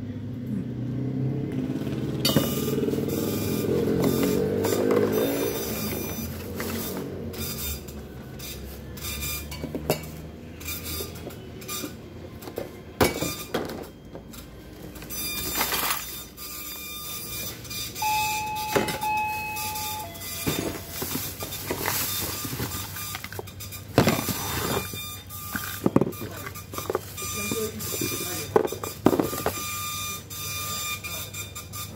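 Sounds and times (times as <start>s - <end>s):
short steady tone: 18.0s - 21.0s
plastic bag rustling: 19.8s - 25.0s, 25.6s - 28.5s.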